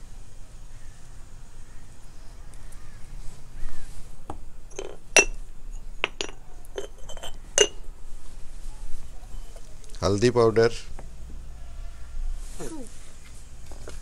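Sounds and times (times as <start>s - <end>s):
spoon clinking on clay pot: 4.7s - 7.8s.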